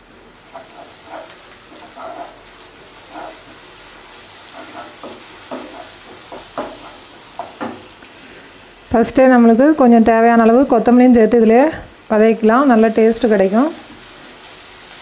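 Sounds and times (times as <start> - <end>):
onions sizzling in hot oil: 0.0 - 15.0
wooden spatula scraping pan: 0.5 - 3.7, 4.4 - 7.6.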